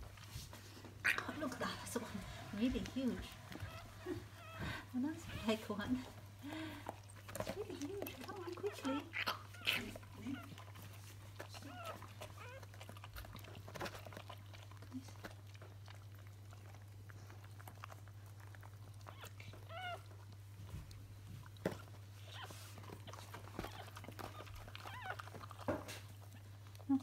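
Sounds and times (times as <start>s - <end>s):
puppy squeaking: 1.0s - 6.1s, 7.8s - 10.8s, 11.4s - 13.4s, 18.9s - 20.3s, 21.7s - 26.5s.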